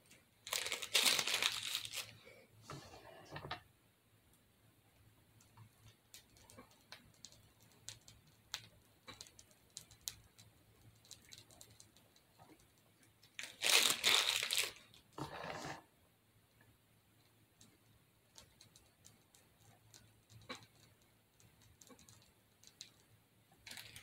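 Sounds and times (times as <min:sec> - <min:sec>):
plastic piping bag crinkling: 0:00.0 - 0:02.2, 0:13.2 - 0:15.2, 0:23.6 - 0:24.0
cake stand rustling and scraping: 0:02.6 - 0:03.6, 0:15.2 - 0:15.8.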